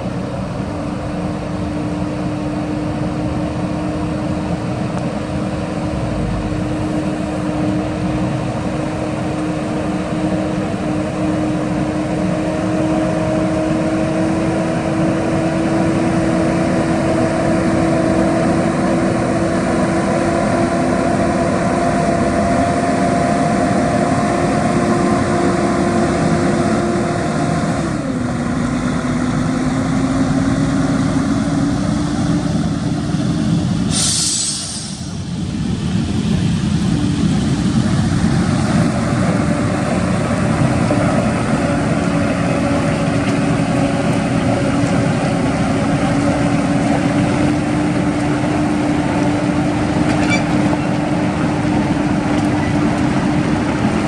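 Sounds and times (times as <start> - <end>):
truck diesel engine passing: 0.0 - 54.0
sharp air hiss: 33.8 - 35.3.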